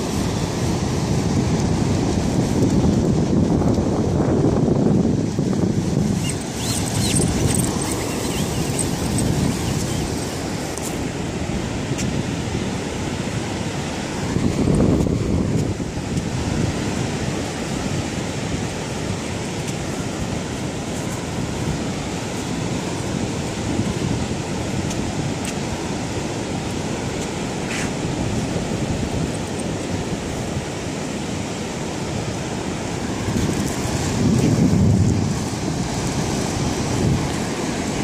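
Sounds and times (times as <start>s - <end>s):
surf washing onto beach: 0.0s - 38.0s
wind buffeting microphone: 0.0s - 38.0s.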